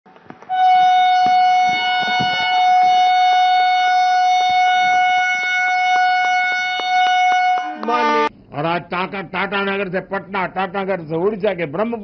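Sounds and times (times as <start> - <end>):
train horn blast: 0.5 - 8.3.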